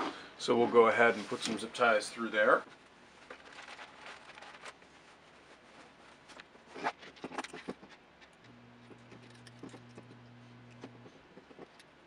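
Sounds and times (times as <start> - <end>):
low steady hum: 8.4 - 12.0.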